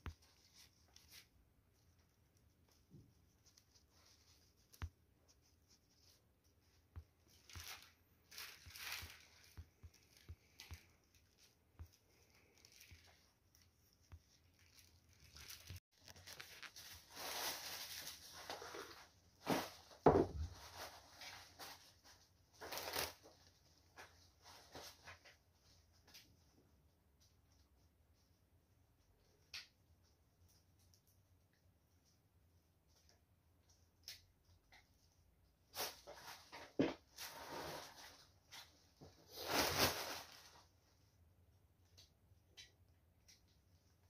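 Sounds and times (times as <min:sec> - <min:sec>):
cellophane rustling and crinkling: 0:00.0 - 0:26.2, 0:35.7 - 0:40.9.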